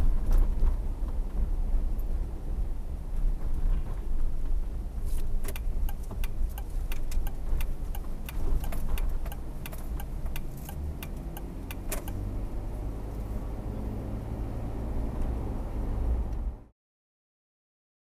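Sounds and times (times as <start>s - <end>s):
car road and engine rumble: 0.0s - 16.7s
irregular sharp clicks: 5.5s - 12.2s.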